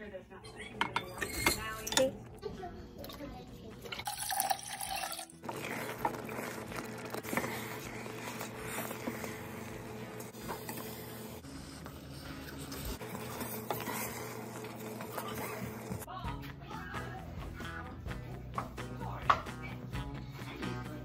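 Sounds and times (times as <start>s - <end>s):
water pouring into a pot: 3.9s - 7.3s
spoon scraping sticky rice in pot: 5.3s - 16.1s.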